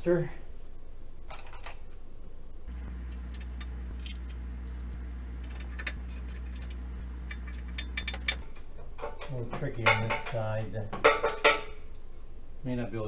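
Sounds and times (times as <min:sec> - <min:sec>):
steady low hum: 0:02.2 - 0:08.6
metal clinks of tools: 0:05.4 - 0:08.4.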